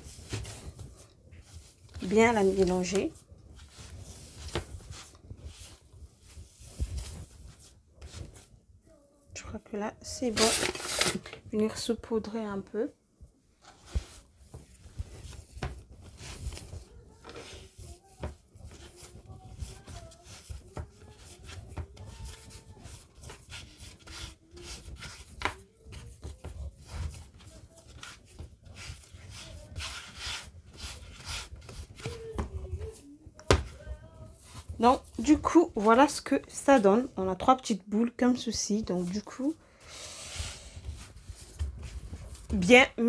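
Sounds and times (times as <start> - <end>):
hands kneading dough: 0.0 - 43.0
soft thuds of dough: 31.4 - 36.0.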